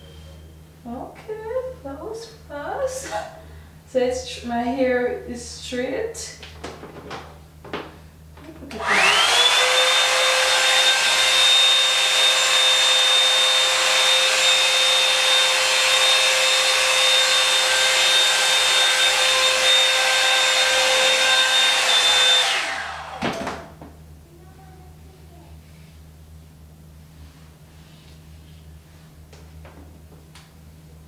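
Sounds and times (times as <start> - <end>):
hair dryer motor whining: 8.7 - 23.8.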